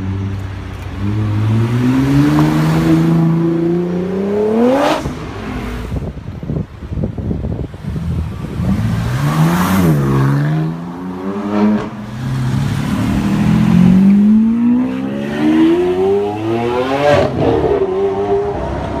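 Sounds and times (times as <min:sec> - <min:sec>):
sports car engine revving through gears: 0:12.9 - 0:18.6.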